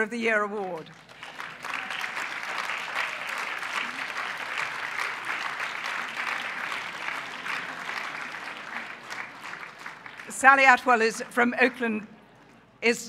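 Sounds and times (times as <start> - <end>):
audience applauding: 0.8 - 10.6.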